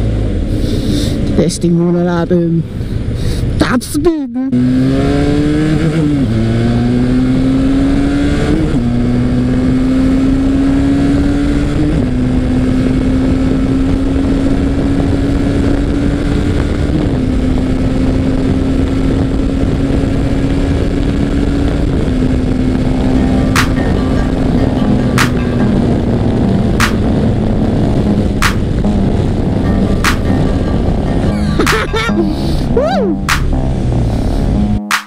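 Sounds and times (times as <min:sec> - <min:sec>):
motorcycle engine accelerating: 0:04.5 - 0:34.9
wind rush: 0:10.4 - 0:34.8.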